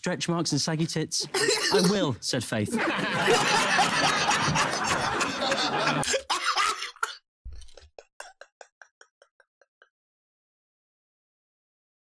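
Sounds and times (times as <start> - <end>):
crowd laughing: 1.8 - 7.0.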